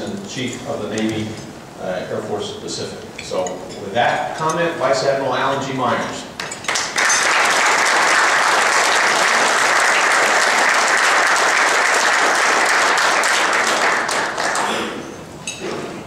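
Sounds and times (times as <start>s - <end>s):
audience applauding: 6.4s - 15.0s.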